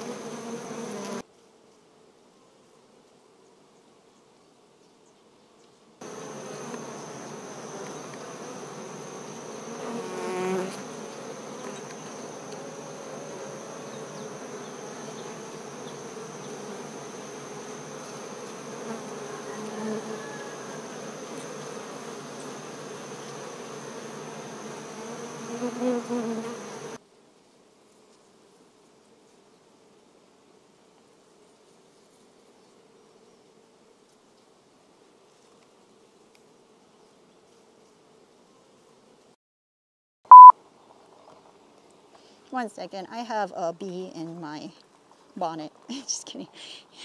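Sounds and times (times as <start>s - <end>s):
honey bees buzzing: 0.0s - 1.2s, 6.0s - 27.0s.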